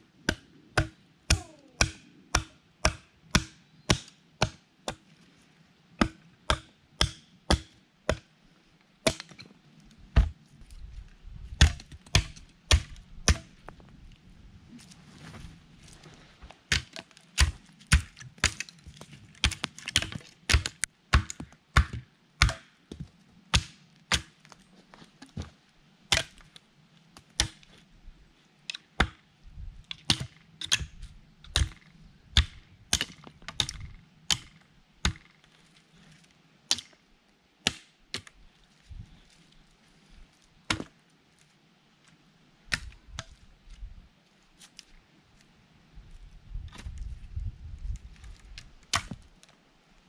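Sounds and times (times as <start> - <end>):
hatchet chopping log: 0.2 - 5.0, 6.0 - 8.3, 9.0 - 9.4, 11.6 - 13.5, 16.7 - 18.7, 19.4 - 24.4, 26.1 - 26.4, 27.2 - 27.7, 30.0 - 30.9, 31.5 - 35.4, 37.6 - 38.4, 40.7 - 40.9, 48.9 - 49.2.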